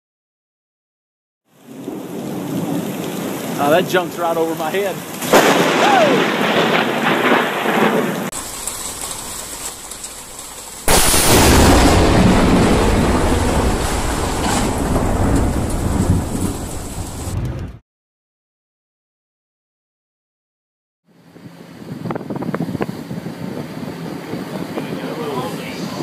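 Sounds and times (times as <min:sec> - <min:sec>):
rain: 0:01.5 - 0:17.8, 0:23.2 - 0:26.0
thunder rumbling: 0:01.6 - 0:17.8.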